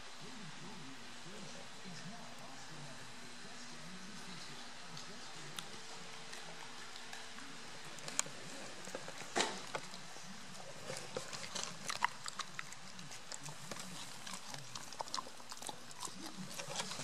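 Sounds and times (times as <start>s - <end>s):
puppy gnawing on a chew: 3.9s - 17.0s.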